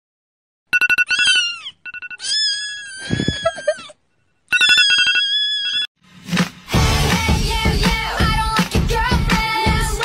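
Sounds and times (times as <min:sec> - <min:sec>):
cat meowing: 0:01.3 - 0:03.8.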